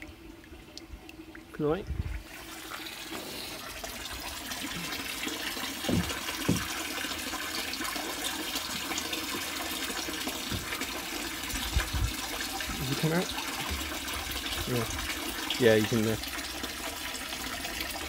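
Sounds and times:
water rushing in fish tank: 0.0 - 18.0
low knocks: 5.8 - 6.8, 10.4 - 10.9.

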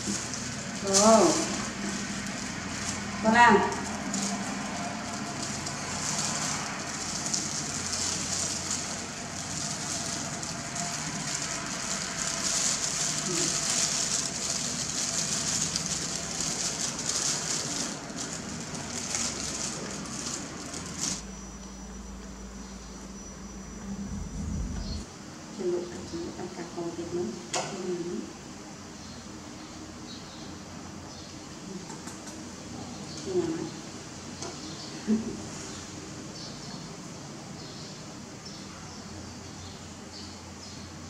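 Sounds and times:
plastic gloves crinkling: 0.0 - 21.3.

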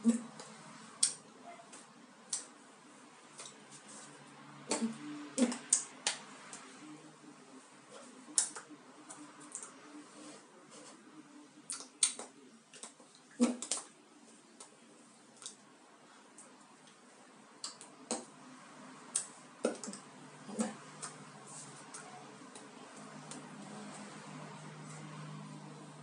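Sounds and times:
faint room hiss: 0.0 - 26.0.

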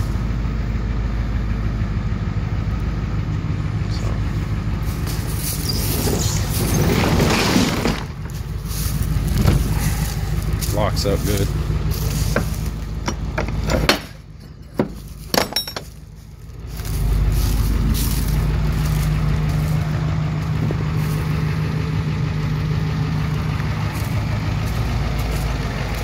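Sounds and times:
diesel engine idling: 0.0 - 26.0
metal clicks and clanks: 12.3 - 16.0.

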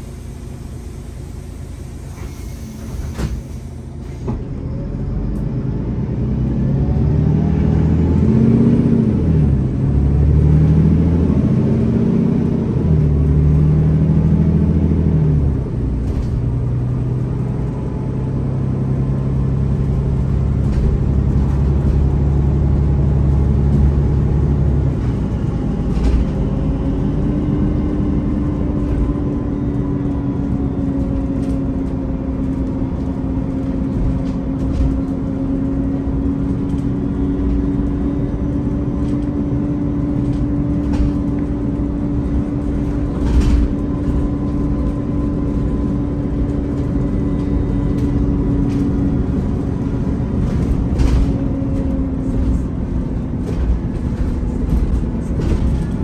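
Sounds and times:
bus engine shifting gears: 0.0 - 56.0
road noise: 0.0 - 56.0.

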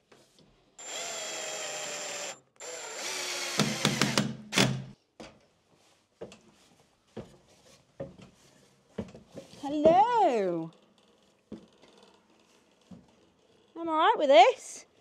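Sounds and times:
cordless drill driving screws: 0.8 - 4.9.

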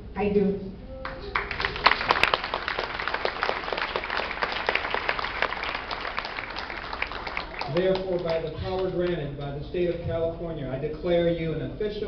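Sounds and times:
audience applauding: 1.0 - 9.2.

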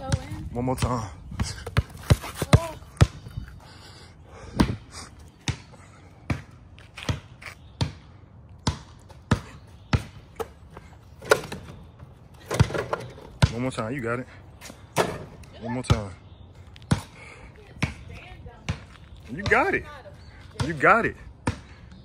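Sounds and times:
basketball bouncing: 0.0 - 3.2, 5.4 - 8.0, 8.6 - 11.8, 12.4 - 13.7, 17.8 - 19.9, 20.6 - 21.7.

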